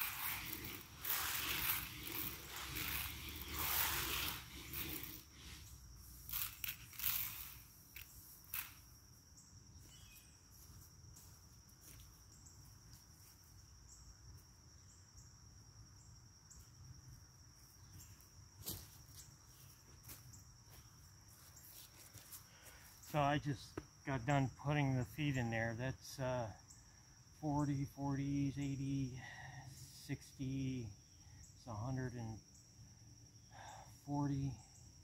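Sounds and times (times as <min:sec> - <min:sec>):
high-pitched insect drone: 0:00.0 - 0:12.5.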